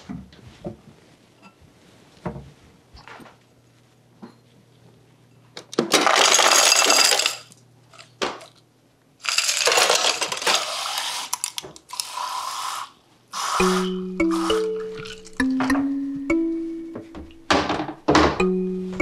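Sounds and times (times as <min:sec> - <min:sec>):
ice cubes clattering into glass: 0:05.9 - 0:07.5, 0:09.2 - 0:10.7.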